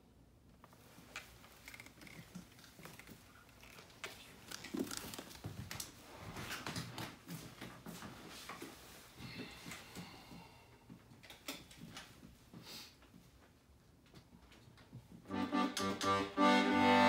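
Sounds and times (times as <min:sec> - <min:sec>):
footsteps on hardwood floor: 0:04.6 - 0:09.6
accordion clicks and knocks: 0:15.3 - 0:17.0.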